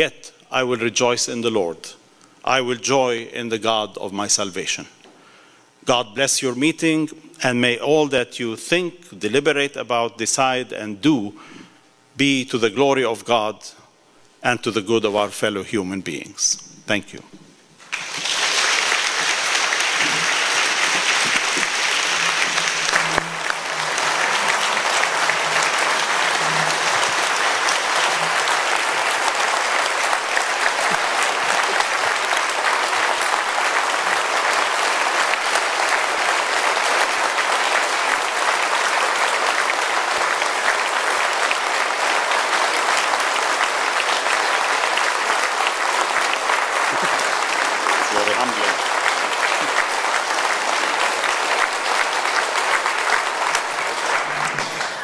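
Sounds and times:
audience applauding: 17.8s - 55.0s.

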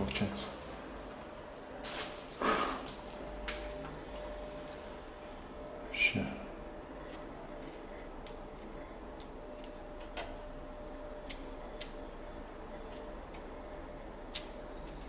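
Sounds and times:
metal probe tips clicking: 14.3s - 15.0s.

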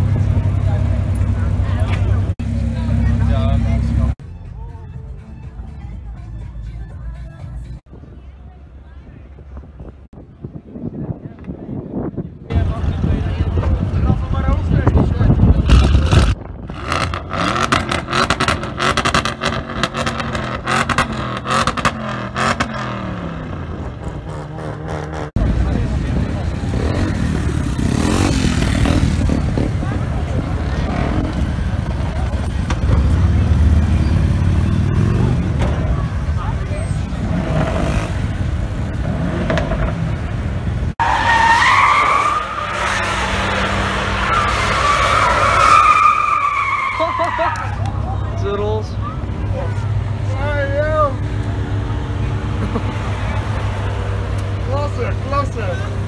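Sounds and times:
car tyres squealing: 26.6s - 40.2s, 41.0s - 48.3s.

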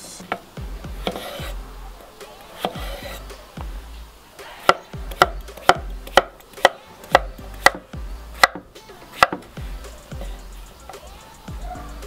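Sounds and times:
knife chopping on wooden board: 1.0s - 1.6s, 2.6s - 3.2s, 4.6s - 9.5s.

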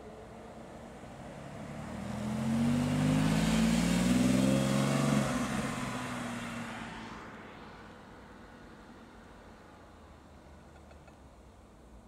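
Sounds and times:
car engine driving past: 0.7s - 7.9s.

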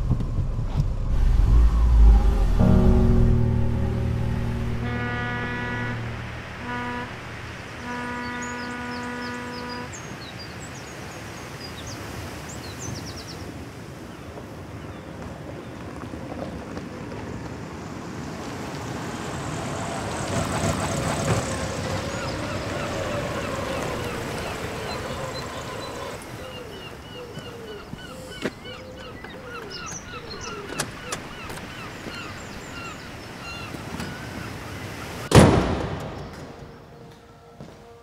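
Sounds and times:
car driving past: 0.5s - 7.9s
low horn-like tone: 1.0s - 10.0s, 36.7s - 38.0s
small birds chirping: 22.0s - 34.5s.

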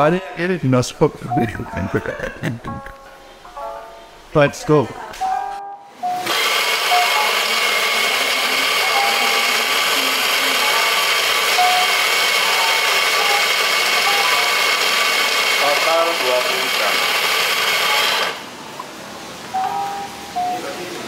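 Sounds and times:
coffee grinder motor whining: 6.2s - 18.4s.

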